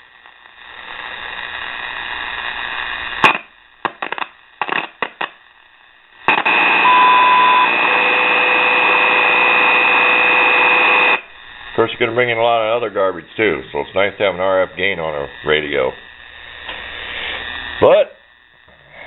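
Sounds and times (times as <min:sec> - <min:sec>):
radio static hiss: 0:00.0 - 0:19.0
sharp click and crackles: 0:03.0 - 0:05.5
high beep: 0:06.8 - 0:07.8.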